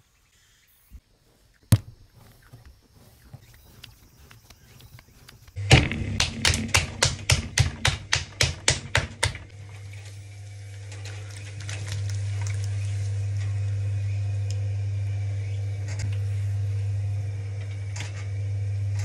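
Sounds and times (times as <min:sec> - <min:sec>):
wet hands rubbing clay: 0:01.2 - 0:05.6
electric potter's wheel motor hum: 0:01.7 - 0:19.0.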